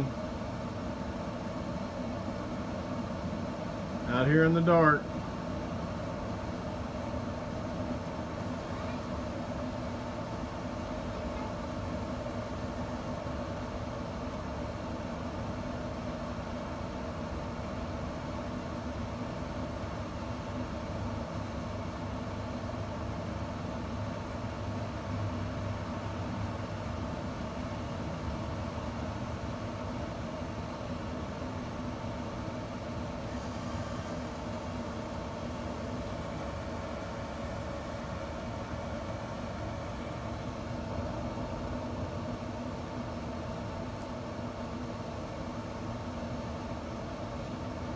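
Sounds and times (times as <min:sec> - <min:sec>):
smoker fan humming: 0:00.0 - 0:47.9.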